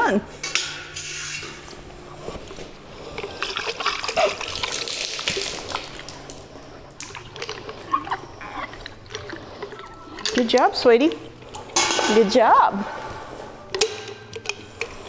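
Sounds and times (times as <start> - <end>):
water squirting and splashing: 3.1 - 12.5
water dribbling out: 3.2 - 12.8.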